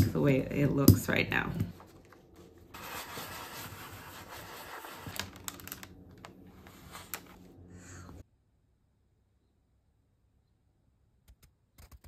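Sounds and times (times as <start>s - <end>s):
paper rubbing against foil: 2.7s - 5.5s
crinkly clicks of paper and foil: 4.7s - 6.4s.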